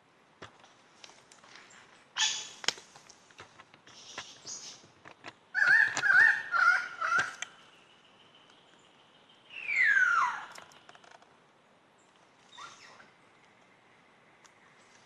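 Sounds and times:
lyrebird warbling with clicks: 5.6 - 7.5.

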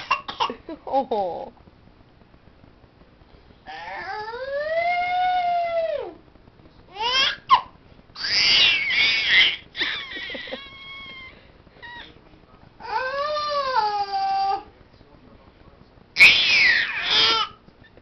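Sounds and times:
baby squealing: 8.2 - 12.2, 16.2 - 17.6.

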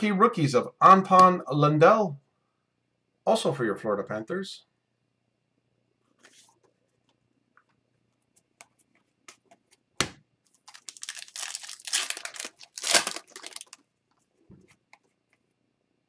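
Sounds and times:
foil wrapper tearing and crinkling: 10.5 - 13.8.

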